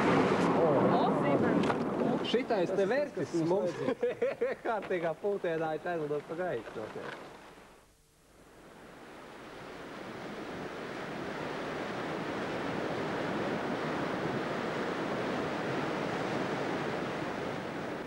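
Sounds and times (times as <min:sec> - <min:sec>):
surf washing onto beach: 0:00.0 - 0:03.1, 0:08.6 - 0:18.0.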